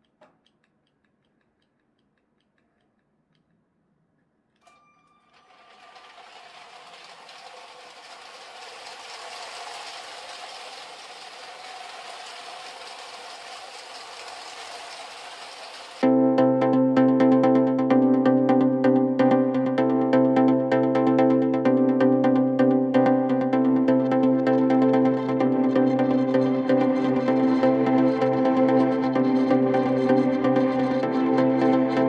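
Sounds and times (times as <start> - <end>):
toy train rolling on plastic track: 4.6 - 16.0
small electric motor whirring: 4.7 - 16.0.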